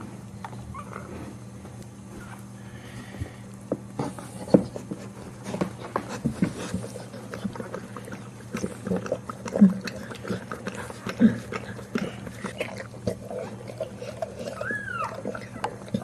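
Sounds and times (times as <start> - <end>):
dog licking wetly: 6.4 - 16.0.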